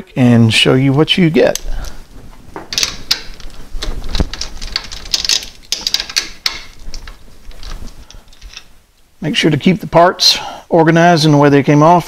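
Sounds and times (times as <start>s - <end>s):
rustling: 0.6s - 9.2s.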